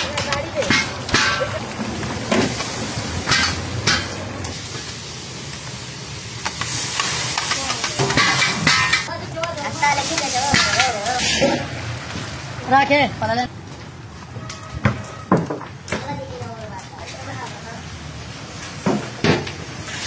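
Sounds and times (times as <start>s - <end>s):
metal bowls knocking pots: 0.0s - 2.6s, 3.2s - 4.2s, 7.4s - 9.1s
food sizzling in cauldrons: 0.0s - 13.5s, 16.2s - 20.0s.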